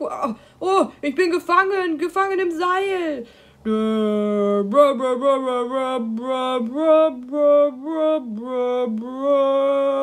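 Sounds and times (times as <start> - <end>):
person singing wordless tune: 2.6 - 10.0.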